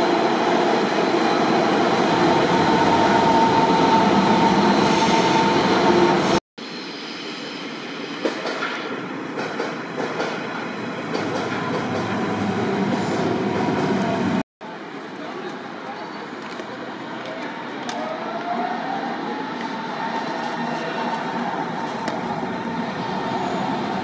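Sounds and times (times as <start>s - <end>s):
electric train whine: 0.0s - 8.3s
train rolling in: 0.0s - 14.4s.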